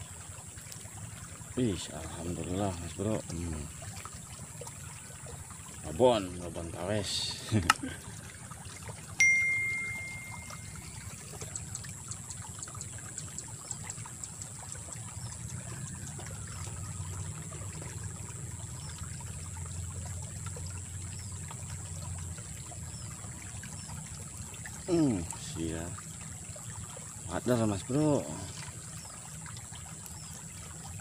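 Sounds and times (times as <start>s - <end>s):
water trickling: 0.0s - 31.0s
faint ticks: 9.6s - 27.0s.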